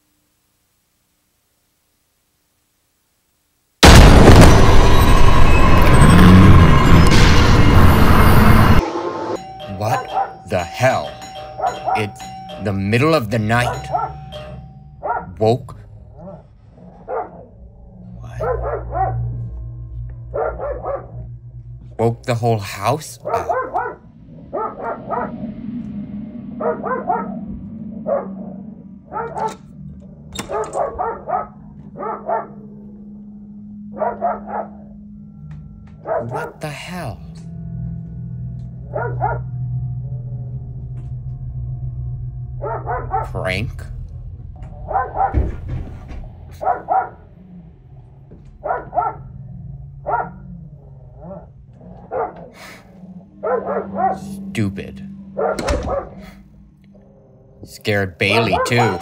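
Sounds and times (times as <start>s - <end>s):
low steady hum: 9.4s - 59.0s
dog barking: 9.9s - 10.5s, 11.6s - 12.1s, 13.6s - 14.4s, 15.0s - 15.4s, 16.2s - 17.5s, 18.2s - 19.4s, 20.3s - 21.3s, 23.2s - 25.4s, 26.6s - 27.4s, 28.0s - 28.4s, 29.1s - 29.6s, 30.5s - 32.6s, 33.9s - 34.9s, 36.0s - 36.5s, 38.9s - 39.5s, 42.6s - 43.5s, 44.8s - 45.6s, 46.6s - 47.2s, 48.6s - 49.3s, 50.0s - 50.5s, 51.2s - 52.6s, 53.4s - 54.4s, 55.4s - 56.4s, 58.2s - 59.0s.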